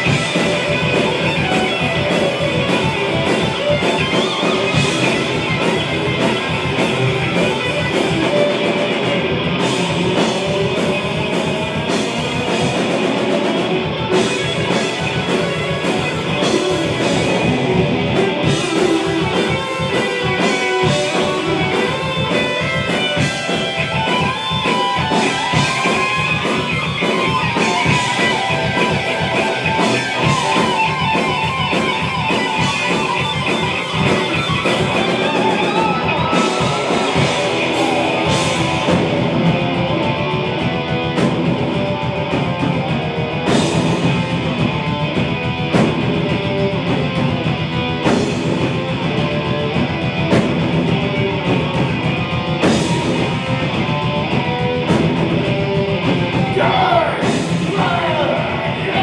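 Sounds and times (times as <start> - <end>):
bass guitar: 0.0 - 59.0
distorted electric guitars: 0.0 - 59.0
drum kit playing: 0.0 - 59.0.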